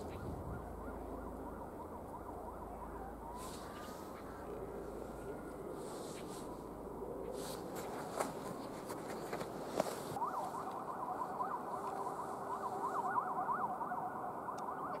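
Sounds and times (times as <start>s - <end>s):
electronic warbling siren tone: 0.0s - 5.9s, 10.2s - 15.0s.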